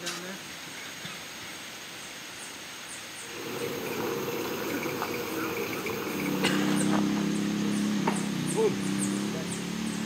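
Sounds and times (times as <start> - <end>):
insects buzzing: 1.6 - 10.0.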